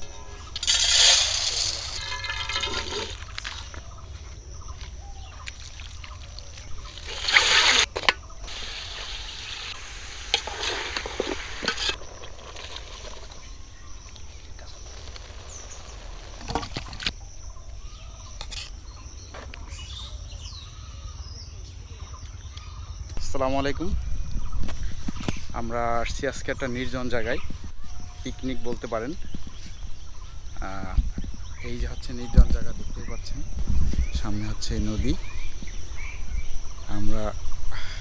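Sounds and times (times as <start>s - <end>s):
metal spatula scraping steel pot: 0.6s - 3.2s, 7.0s - 7.9s, 10.3s - 13.2s
liquid pouring: 0.6s - 3.6s
rice poured into steel bowl: 0.6s - 3.6s.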